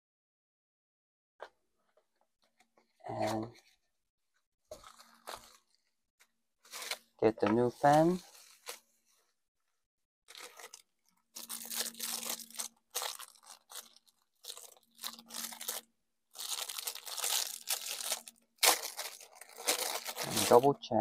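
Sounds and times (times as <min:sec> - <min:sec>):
plastic packaging crinkling: 0:04.7 - 0:05.9, 0:10.3 - 0:20.7.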